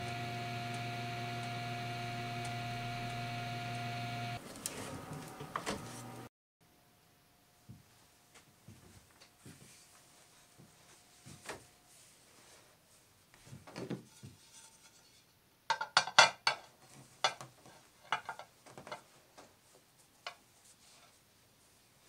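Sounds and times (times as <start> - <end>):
plates knocking: 15.7 - 17.4.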